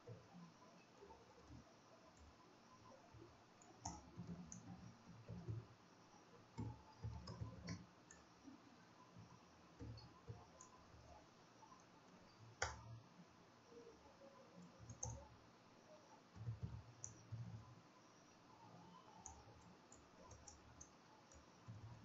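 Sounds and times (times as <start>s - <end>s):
computer keyboard typing: 6.5s - 8.2s, 14.6s - 15.3s, 16.3s - 17.6s, 18.8s - 22.0s.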